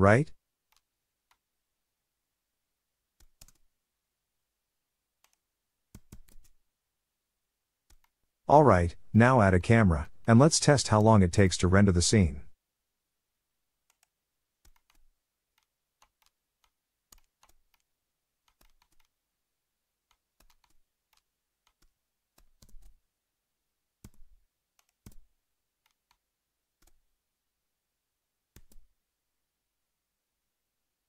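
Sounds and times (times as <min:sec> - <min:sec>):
computer keyboard and mouse clicking: 0:00.7 - 0:01.4, 0:03.2 - 0:03.7, 0:05.2 - 0:06.6, 0:07.8 - 0:08.2, 0:13.8 - 0:19.2, 0:20.0 - 0:23.0, 0:24.0 - 0:26.2, 0:26.8 - 0:27.1, 0:28.5 - 0:29.0.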